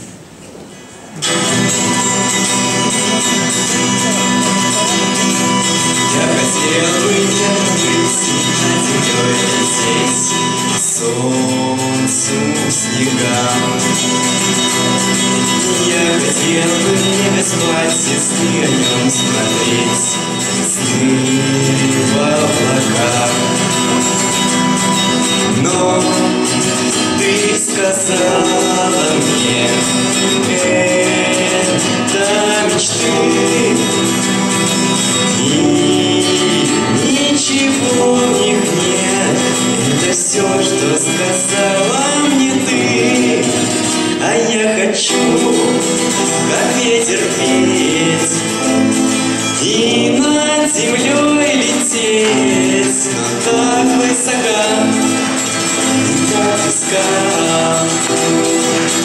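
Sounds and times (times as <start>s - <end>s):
strummed acoustic guitars: 0.0s - 59.0s
electric keyboard: 1.2s - 59.0s
young man singing: 1.2s - 59.0s
boy singing into a microphone: 35.3s - 55.2s.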